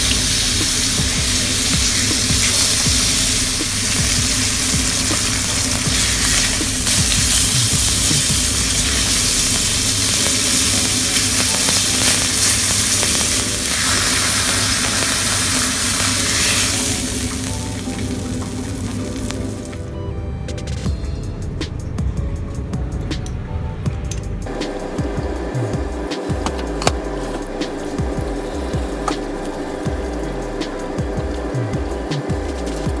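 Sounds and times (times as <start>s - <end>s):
steak sizzling in hot oil: 0.0s - 19.8s.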